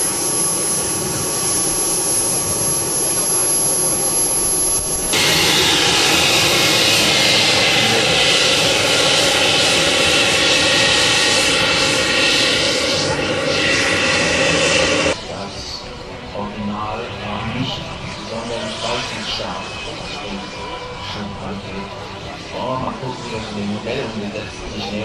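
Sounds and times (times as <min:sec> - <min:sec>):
model jet turbines whining: 0:00.0 - 0:25.0.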